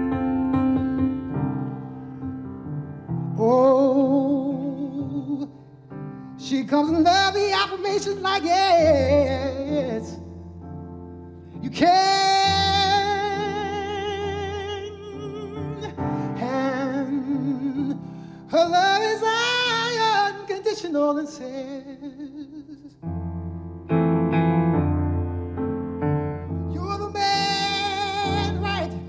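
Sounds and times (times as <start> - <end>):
grand piano: 0.0 - 29.0
man singing with vibrato: 3.4 - 5.6, 6.4 - 10.5, 11.6 - 23.0, 26.6 - 29.0.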